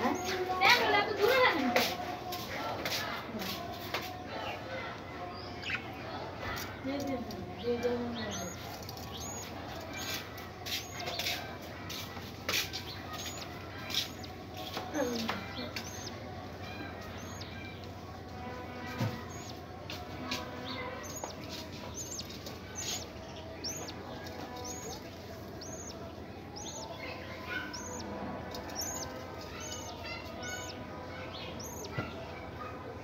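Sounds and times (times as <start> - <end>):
birds scratching and rustling: 0.0 - 33.0
budgerigars chirping: 5.4 - 18.1, 18.8 - 32.2.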